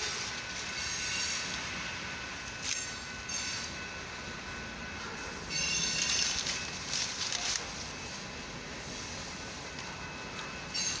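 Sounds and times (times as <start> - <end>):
high wheel squeal: 0.0 - 1.5, 5.5 - 6.4
train wheels on rail: 0.0 - 11.0.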